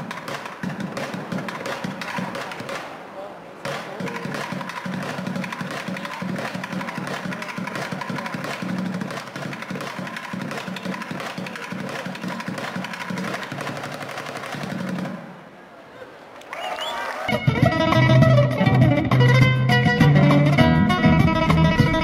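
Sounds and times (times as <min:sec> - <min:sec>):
drumsticks on plastic buckets: 0:00.0 - 0:03.0, 0:03.6 - 0:15.2.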